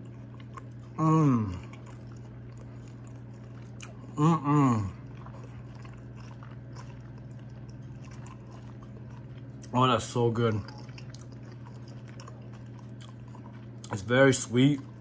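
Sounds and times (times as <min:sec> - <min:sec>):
person chewing: 0:00.0 - 0:15.0
steady low hum: 0:00.0 - 0:15.0
person humming mmm: 0:00.9 - 0:01.8, 0:03.8 - 0:05.2.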